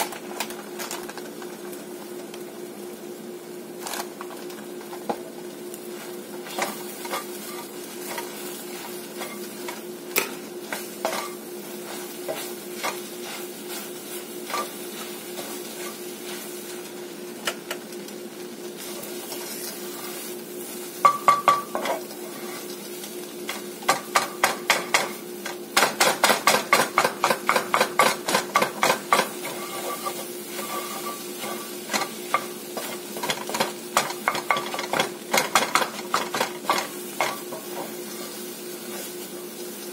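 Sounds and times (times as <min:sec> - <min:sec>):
frying sizzle: 0:00.0 - 0:39.9
spatula scraping a skillet: 0:05.9 - 0:16.9, 0:18.8 - 0:24.1, 0:27.0 - 0:39.7.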